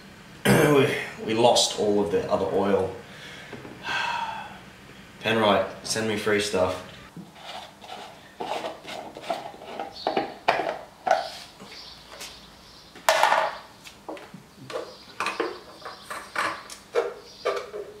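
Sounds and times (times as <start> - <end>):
hard items clattering: 13.1 - 13.6.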